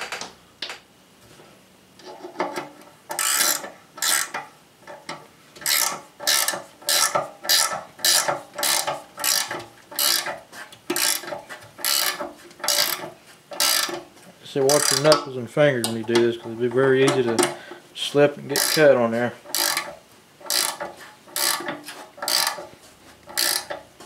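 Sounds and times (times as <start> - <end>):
ratcheting wrench clicking: 3.1 - 4.4, 5.6 - 14.0, 14.6 - 15.3, 18.5 - 23.8.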